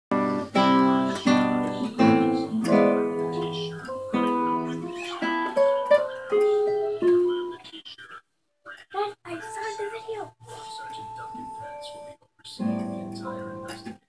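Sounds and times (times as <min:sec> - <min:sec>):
acoustic guitar strumming and plucking: 0:00.1 - 0:07.6, 0:12.6 - 0:14.0.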